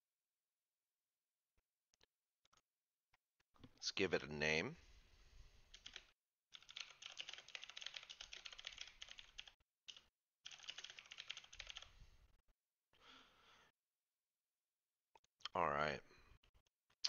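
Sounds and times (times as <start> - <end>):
faint keyboard typing: 5.7 - 11.9.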